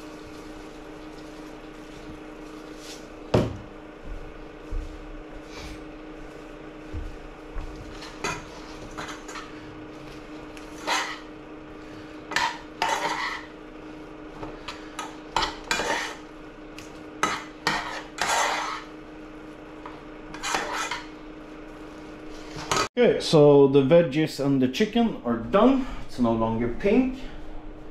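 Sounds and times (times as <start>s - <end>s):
utensil scraping saucepan: 7.9s - 9.6s, 10.7s - 11.3s, 12.3s - 13.6s, 14.6s - 16.3s, 17.2s - 19.0s, 20.3s - 21.2s.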